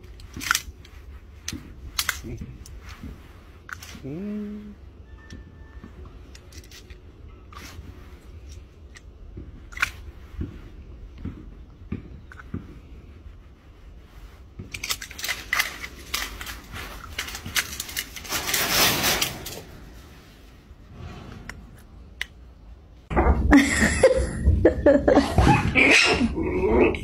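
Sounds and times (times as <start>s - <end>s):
faint clicks and crunching: 5.2s - 13.5s, 14.2s - 20.6s.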